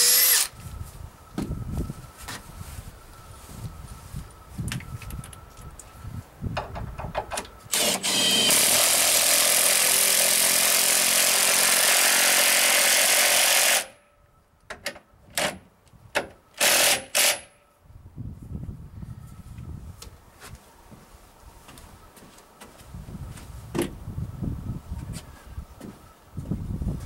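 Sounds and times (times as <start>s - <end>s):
power driver driving a screw: 0.0s - 0.5s, 7.7s - 13.9s, 16.6s - 17.5s.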